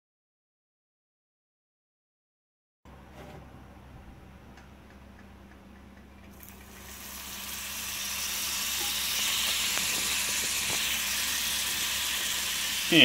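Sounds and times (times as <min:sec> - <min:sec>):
butter sizzling in frying pan: 0:06.4 - 0:13.0.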